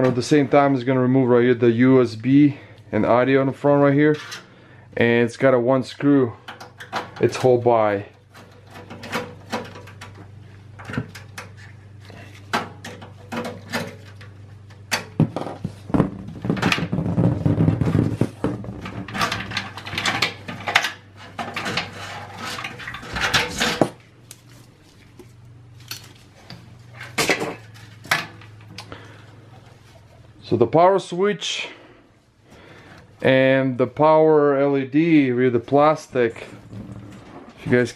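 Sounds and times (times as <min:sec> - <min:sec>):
metal scraping and rattling: 0:03.8 - 0:04.6, 0:06.3 - 0:24.8, 0:25.7 - 0:30.6, 0:35.8 - 0:37.9.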